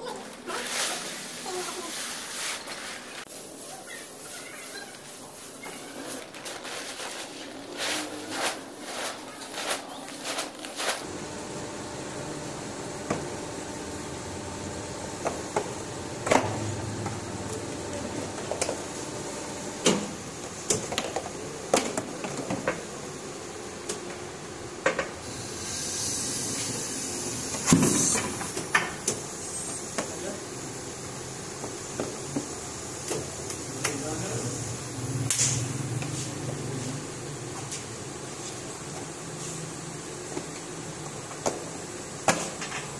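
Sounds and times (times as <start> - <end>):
plastic granules rustling: 0.0 - 11.0
machinery hum: 0.0 - 42.9
hiss: 0.4 - 11.1, 25.2 - 37.0.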